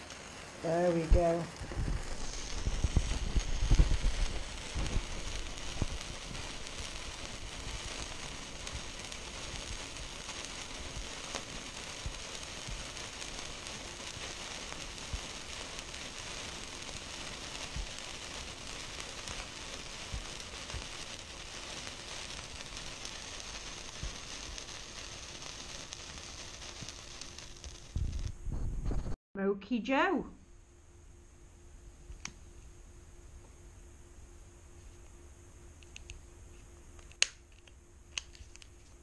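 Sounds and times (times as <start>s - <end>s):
sharp crackles: 0.0s - 29.2s, 35.8s - 39.0s
sparklers fizzing: 0.0s - 29.2s.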